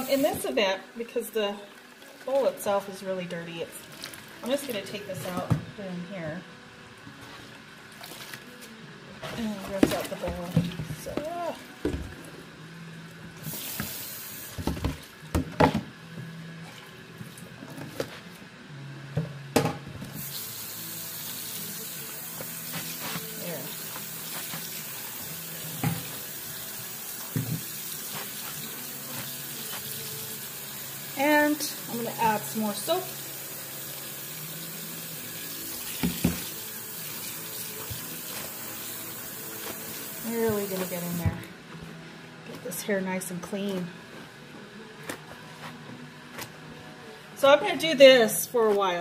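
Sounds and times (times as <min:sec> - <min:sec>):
faucet running into tub: 0:00.0 - 0:05.5, 0:13.4 - 0:15.2, 0:20.2 - 0:41.4
tap running into metal sink: 0:35.8 - 0:36.6.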